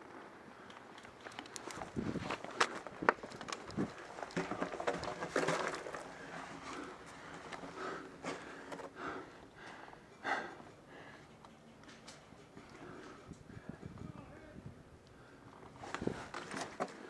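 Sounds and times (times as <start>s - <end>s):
breathing in enclosed pipe: 6.2s - 11.4s.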